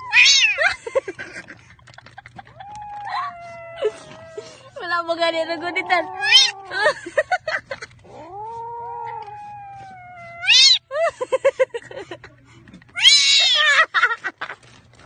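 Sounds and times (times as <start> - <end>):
kitten meowing: 0.0 - 0.6, 5.8 - 6.6, 8.2 - 10.8, 13.0 - 13.7.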